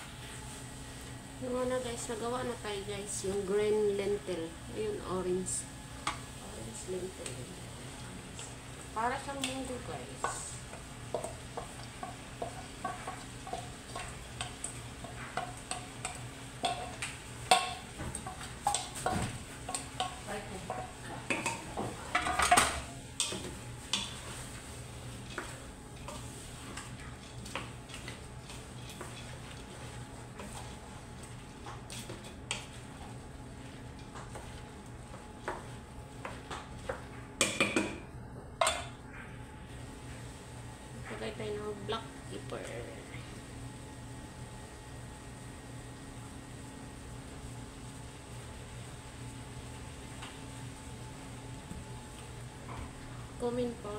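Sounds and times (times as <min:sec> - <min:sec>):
louder clatters in pot: 0:11.1 - 0:24.2.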